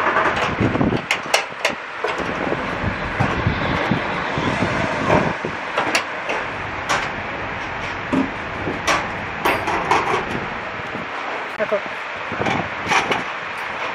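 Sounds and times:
workshop hum: 0.0 - 13.9.

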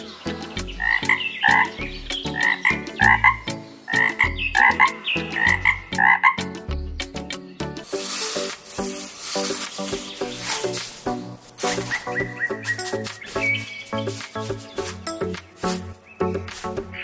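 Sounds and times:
background music with beat: 0.0 - 17.0
frog croaking: 2.4 - 6.4.

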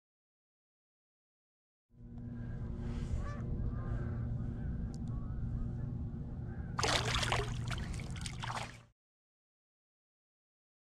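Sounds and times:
steady low hum: 2.0 - 8.8
water splashing against a kayak: 6.8 - 8.9.

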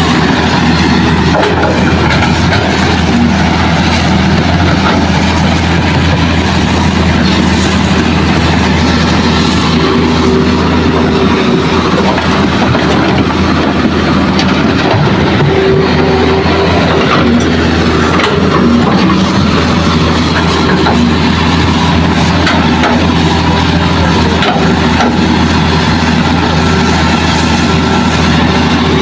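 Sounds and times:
excavator diesel engine running: 0.0 - 29.0.

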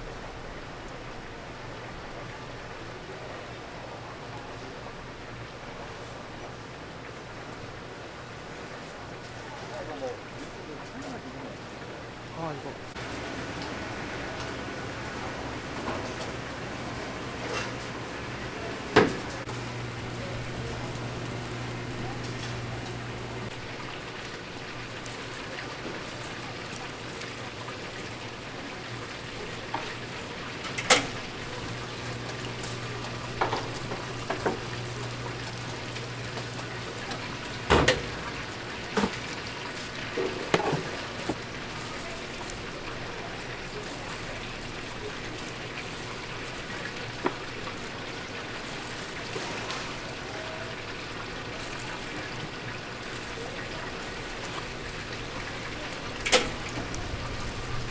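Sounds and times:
chicken sizzling in hot oil: 12.9 - 57.9.

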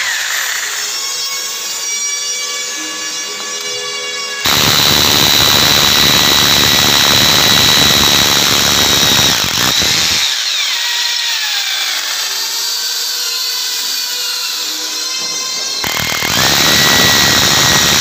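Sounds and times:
drill motor whine slowing: 0.0 - 18.0
hammer drill grinding: 0.0 - 18.0.

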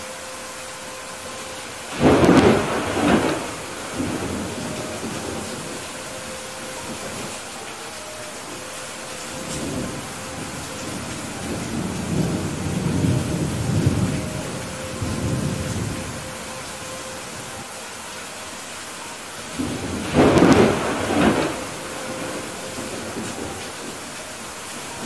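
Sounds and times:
heavy rain falling: 0.0 - 25.0
low rolling thunder: 1.8 - 7.6, 9.2 - 17.6, 19.5 - 25.0
sharp thunderclap: 1.9 - 5.5, 19.6 - 23.5.

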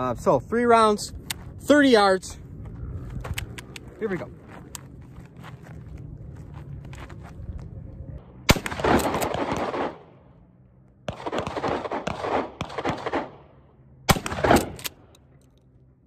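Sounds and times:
shotgun shots: 8.4 - 10.1, 11.1 - 13.4, 14.1 - 15.1.

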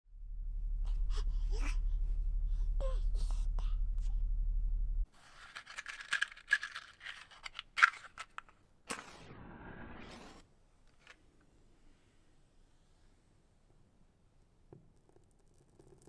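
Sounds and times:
steady low hum: 0.1 - 5.1
matchbox handled: 5.2 - 9.1.

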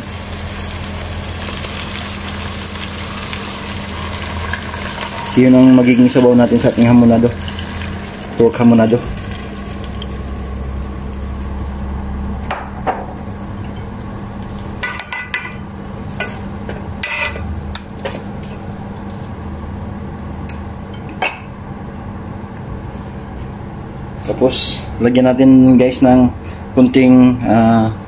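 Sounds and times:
steady low hum: 0.0 - 28.0
metal spoon scraping a pot: 17.0 - 17.4.

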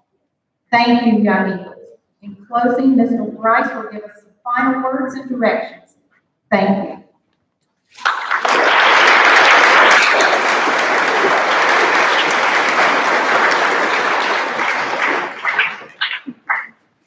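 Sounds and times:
audience applauding: 8.0 - 16.7.

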